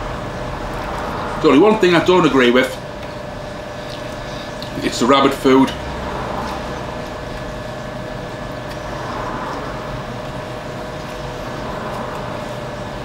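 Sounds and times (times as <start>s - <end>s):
mechanical hum and hiss: 0.0s - 13.0s.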